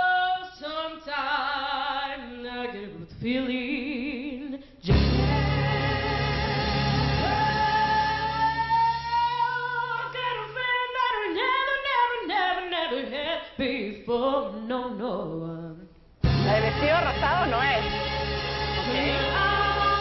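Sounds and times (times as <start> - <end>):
woman singing into a microphone: 0.0 - 16.0, 18.8 - 20.0
low backing accompaniment: 4.9 - 9.2, 16.2 - 20.0.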